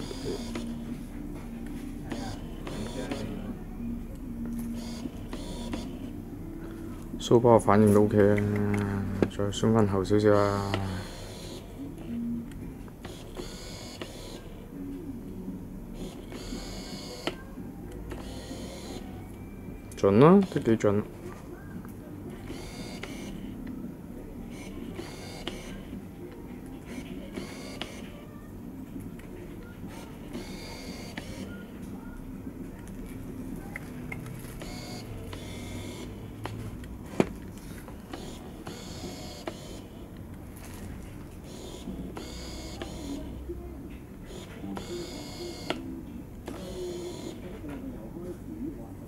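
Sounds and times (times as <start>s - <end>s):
lens autofocus motor whirring: 2.0s - 3.5s, 4.5s - 6.1s, 18.0s - 19.1s, 24.5s - 25.8s, 38.1s - 40.0s, 41.4s - 43.3s.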